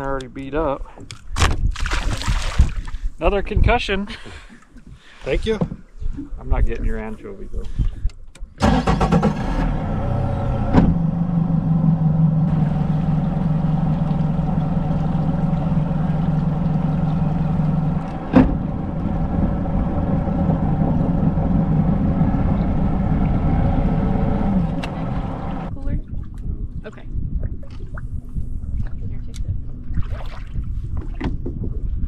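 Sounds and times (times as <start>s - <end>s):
boat engine idling: 9.7s - 26.0s.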